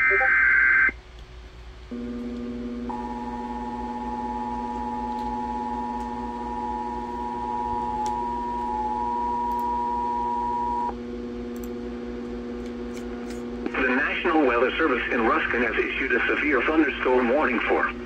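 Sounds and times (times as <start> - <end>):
two-tone alert signal: 0.0 - 0.9.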